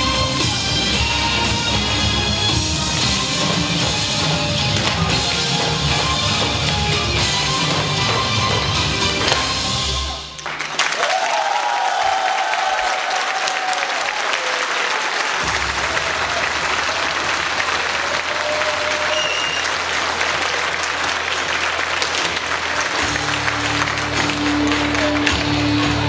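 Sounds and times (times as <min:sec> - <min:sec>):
dance music: 0:00.0 - 0:10.4, 0:19.8 - 0:26.0
audience applause: 0:04.7 - 0:26.0.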